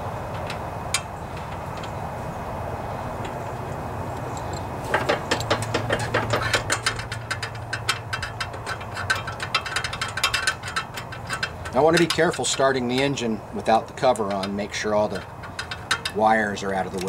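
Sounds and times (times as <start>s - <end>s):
ratchet wrench clicking: 4.2s - 13.3s, 14.0s - 17.0s.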